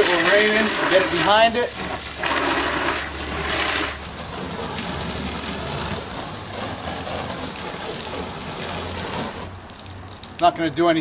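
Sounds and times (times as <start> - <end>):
hose spray nozzle hissing: 0.0 - 9.5
water jet splashing on wall: 0.0 - 11.0.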